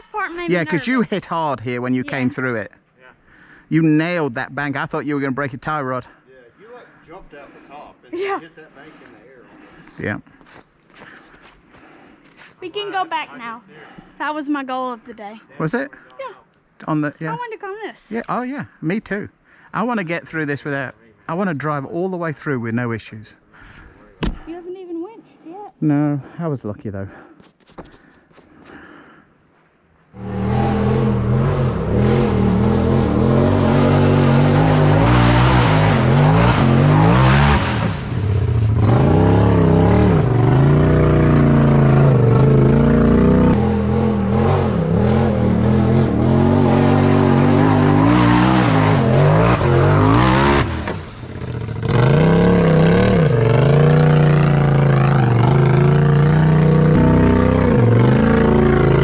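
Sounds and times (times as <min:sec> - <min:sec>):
engine revving under throttle: 0:30.2 - 0:59.0.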